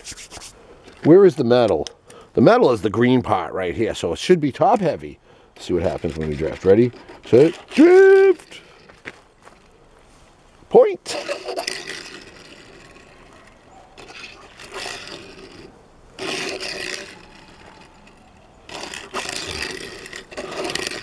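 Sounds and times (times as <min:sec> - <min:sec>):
toy wheels rolling and skidding: 0:04.6 - 0:09.0, 0:11.0 - 0:21.0.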